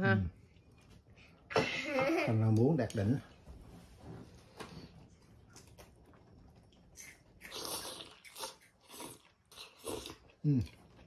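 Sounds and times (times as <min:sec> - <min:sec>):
person slurping soup: 0:07.0 - 0:10.8.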